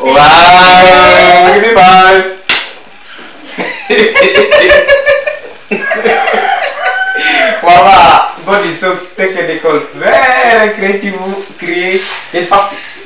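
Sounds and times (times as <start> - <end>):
sharp smack: 2.5 - 2.8
people laughing: 3.5 - 7.6.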